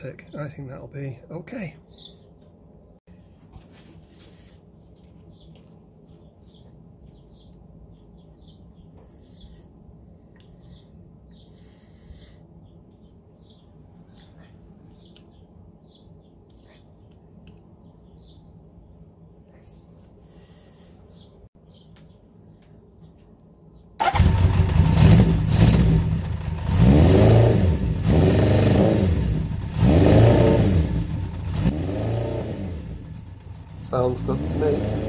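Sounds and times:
faint bird chirps: 5.3 - 17.2
motorcycle engine starting and revving: 24.0 - 35.0.

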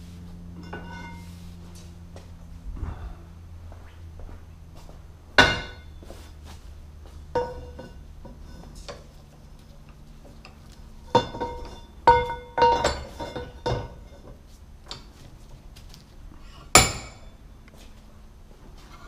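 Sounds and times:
ringing metal clanks: 0.6 - 1.3, 5.4 - 6.1, 7.3 - 9.0, 10.4 - 14.3, 16.7 - 17.4.

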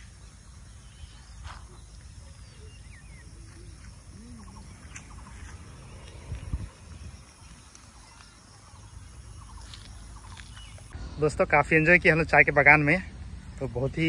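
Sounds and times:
faint bird chirps: 0.0 - 11.3
wind rumble on microphone: 4.3 - 8.0.

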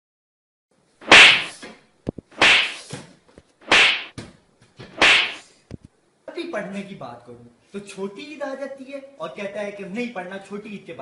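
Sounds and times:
sharp lashing strikes: 1.0 - 1.6, 2.4 - 2.9, 3.6 - 4.1, 5.0 - 5.4.

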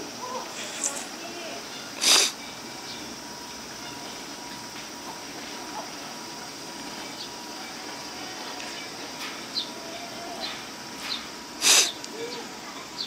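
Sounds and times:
outdoor background hiss: 0.0 - 13.0
breathy puff of noise: 2.0 - 2.4, 11.6 - 12.0.

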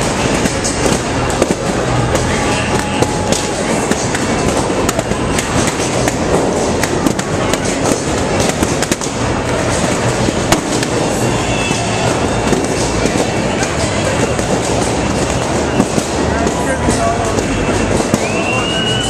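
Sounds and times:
sharp bangs: 0.0 - 19.0
crowd cheering and applauding: 1.9 - 6.2, 17.5 - 19.0.

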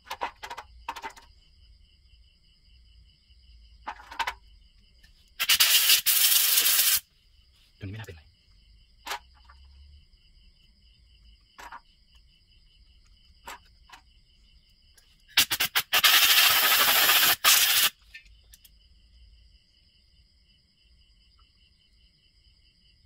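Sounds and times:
small parts clicking: 0.0 - 1.3
pressurised jet hissing: 5.4 - 7.0, 15.4 - 18.0.

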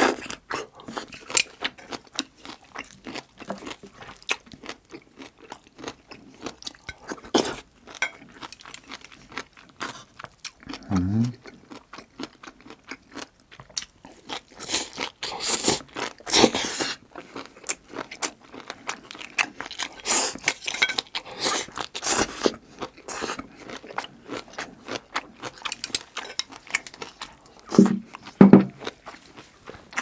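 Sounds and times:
person chewing with crunching: 0.0 - 30.0
deep mouth sounds: 10.7 - 11.4.

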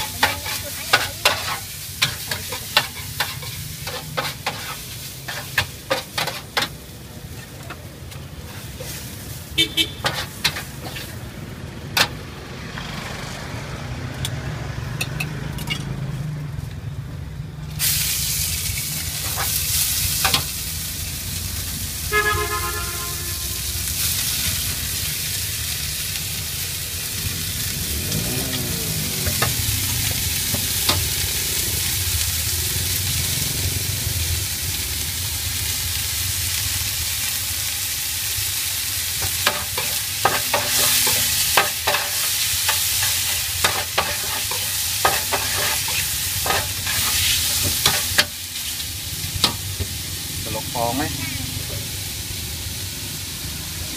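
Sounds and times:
noodles sizzling in a wok: 0.0 - 12.6, 17.6 - 53.9
low street traffic: 0.0 - 53.9
vehicle horn: 9.5 - 10.1, 22.0 - 23.8.

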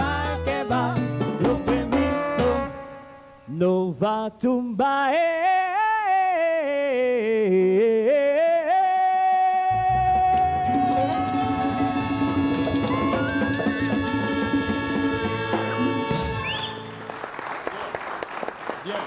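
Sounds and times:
salsa band playing: 0.0 - 3.6, 9.9 - 17.3
person singing unaccompanied: 0.0 - 12.2.

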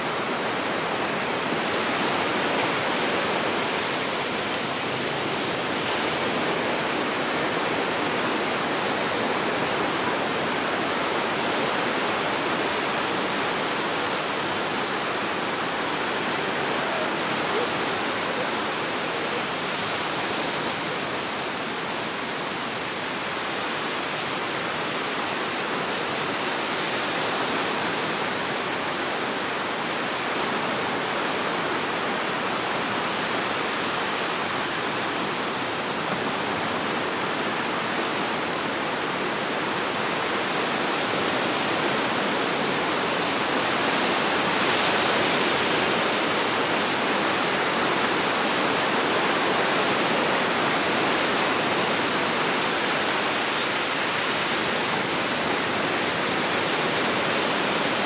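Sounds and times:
small waves breaking on shore: 0.0 - 58.0.

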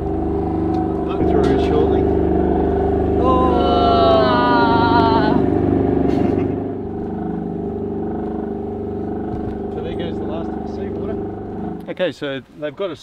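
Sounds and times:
pump running: 0.0 - 11.9
wavering falling whistle: 2.2 - 5.8.

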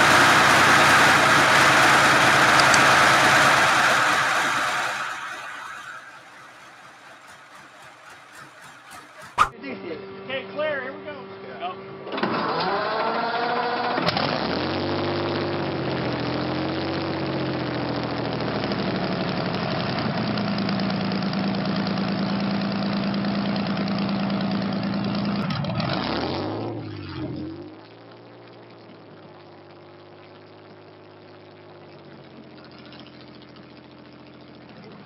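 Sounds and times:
engine idling: 0.0 - 9.4, 14.4 - 26.1, 26.8 - 35.0
large engine revving: 0.0 - 9.5, 12.0 - 21.2, 21.8 - 28.0.

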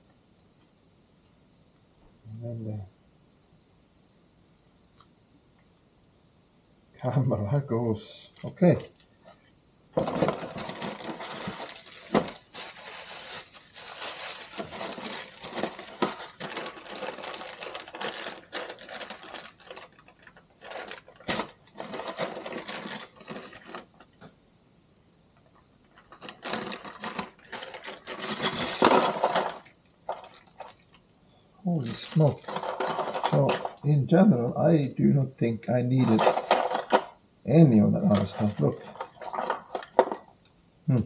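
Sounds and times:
plastic parts rustling and clicking: 10.0 - 24.3, 25.5 - 31.1, 31.8 - 33.8, 36.0 - 37.2, 38.1 - 40.5.

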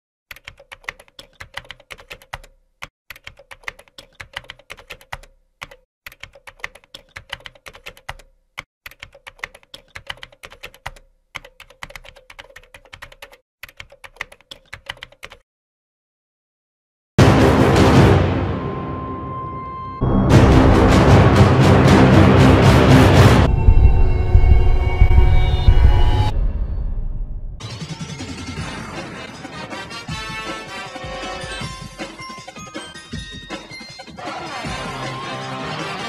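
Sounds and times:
computer keyboard key clicks: 0.3 - 8.3, 8.9 - 15.4.

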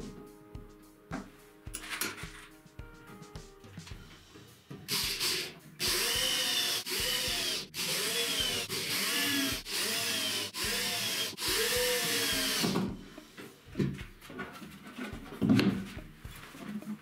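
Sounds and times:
electric drill boring into wood: 4.9 - 12.9.

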